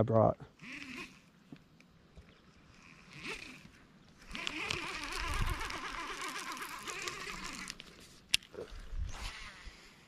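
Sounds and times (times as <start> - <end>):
fishing reel whirring: 0.6 - 1.4, 2.4 - 10.0.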